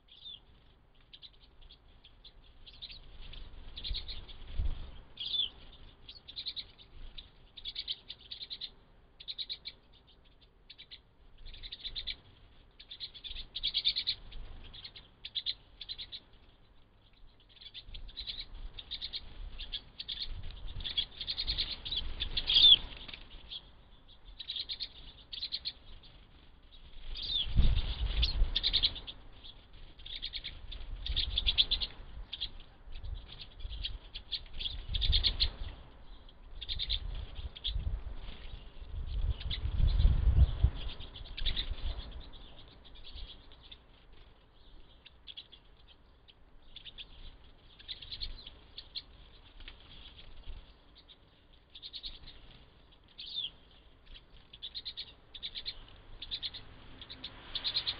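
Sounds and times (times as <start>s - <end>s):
birds twittering: 0.0s - 57.9s
fluttering wingbeats: 17.9s - 23.7s, 24.4s - 35.8s, 46.8s - 57.9s.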